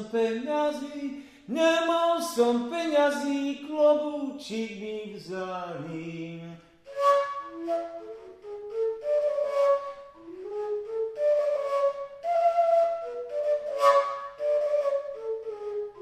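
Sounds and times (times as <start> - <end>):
person singing: 0.0 - 6.7
overtone flute melody: 6.8 - 16.0.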